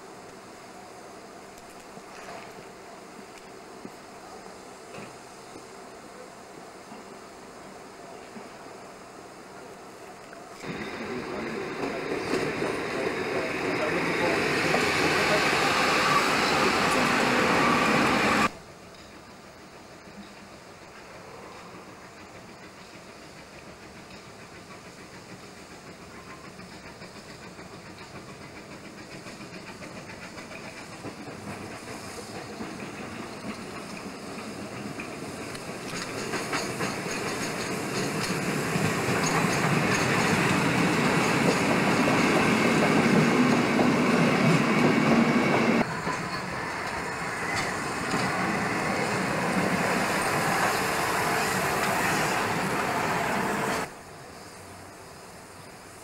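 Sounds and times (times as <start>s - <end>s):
train wheels clattering over rail joints: 22.0s - 52.7s.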